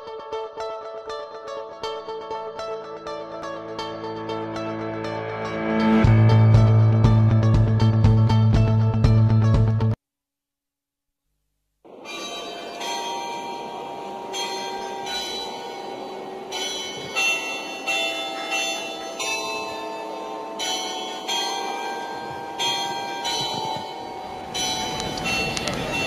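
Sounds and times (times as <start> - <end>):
church bells ringing: 11.9 - 26.0
steady background noise: 11.9 - 26.0.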